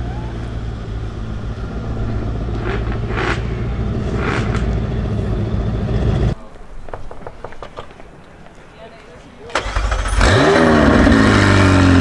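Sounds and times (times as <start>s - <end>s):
car engine droning: 0.0s - 6.4s, 9.6s - 12.0s.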